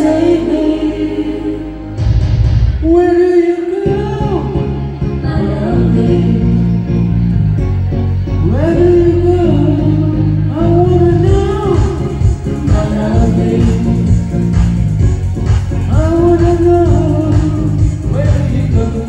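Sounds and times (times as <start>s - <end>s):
person singing: 0.0s - 2.0s, 2.8s - 6.9s, 8.4s - 14.3s, 15.8s - 19.0s
instrumental backing: 0.0s - 19.0s.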